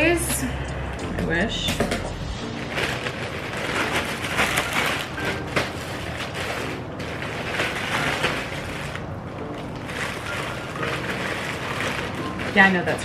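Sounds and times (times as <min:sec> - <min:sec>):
plastic bag crinkling and tearing: 0:02.4 - 0:13.0.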